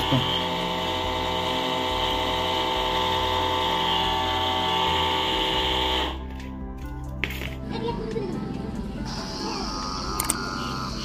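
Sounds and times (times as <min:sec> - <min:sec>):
spray pump humming: 0:00.0 - 0:06.2, 0:08.6 - 0:11.0.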